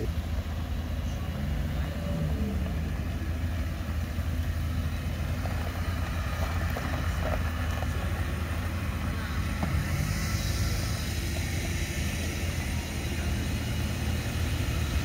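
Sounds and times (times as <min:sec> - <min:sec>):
car engines idling: 0:00.0 - 0:15.0.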